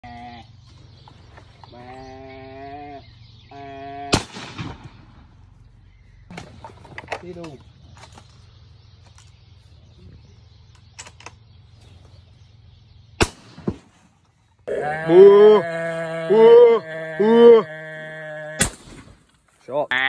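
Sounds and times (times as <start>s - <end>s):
rifle shot: 4.2s - 5.2s, 13.2s - 13.9s
rising-and-falling calls: 14.7s - 18.7s.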